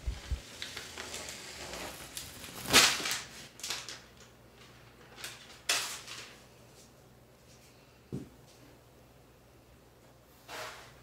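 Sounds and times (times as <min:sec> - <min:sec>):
vinyl tiles and paper rustling: 0:00.0 - 0:07.8.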